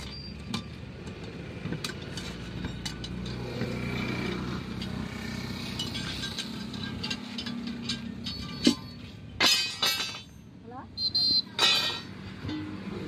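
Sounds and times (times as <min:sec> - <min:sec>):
engine humming: 0:00.0 - 0:13.0
tyre levers clinking on steel rim: 0:00.0 - 0:13.0.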